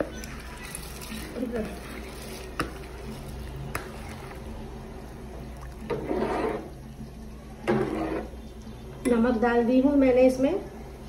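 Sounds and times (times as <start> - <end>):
water pouring into a pot: 0.0 - 7.2.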